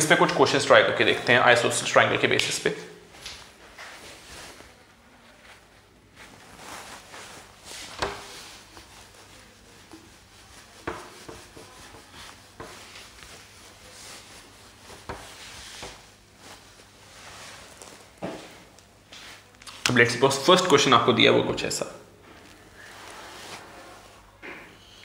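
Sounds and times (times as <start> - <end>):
hand rubbing whiteboard: 6.4 - 16.2, 22.8 - 24.3.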